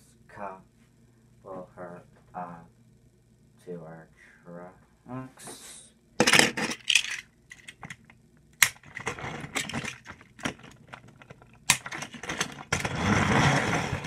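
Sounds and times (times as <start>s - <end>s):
plastic toy train clicking: 6.2s - 8.0s, 8.6s - 14.0s
toy handling noise: 6.2s - 14.0s.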